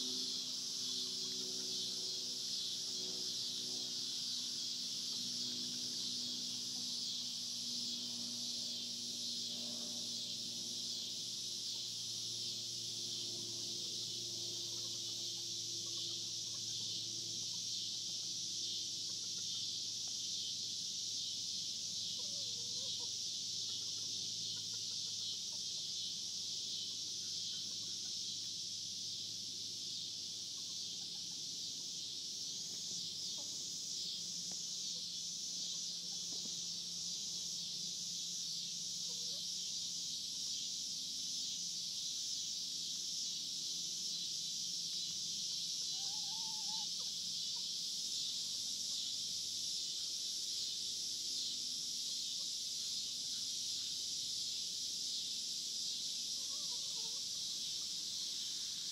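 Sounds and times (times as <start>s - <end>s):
cicadas singing: 0.0s - 58.9s
chicken clucking: 22.2s - 26.0s, 30.5s - 31.5s, 45.8s - 47.7s, 56.4s - 57.9s.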